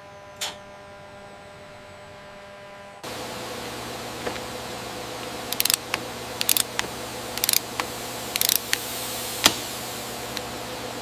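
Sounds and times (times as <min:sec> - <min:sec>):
steady hum: 0:00.0 - 0:11.0
wrench ratcheting clicks: 0:05.5 - 0:06.8, 0:07.4 - 0:07.7, 0:08.4 - 0:08.8.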